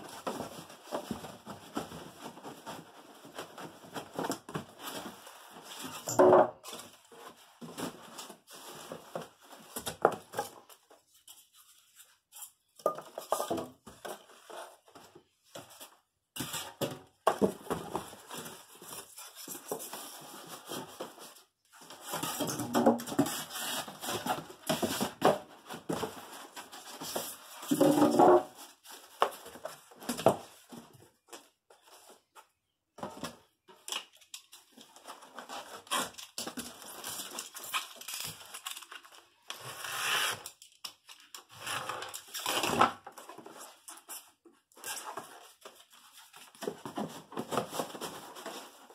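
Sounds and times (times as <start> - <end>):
cardboard rustling and scraping: 0.0 - 6.0, 13.8 - 33.5, 41.5 - 48.9.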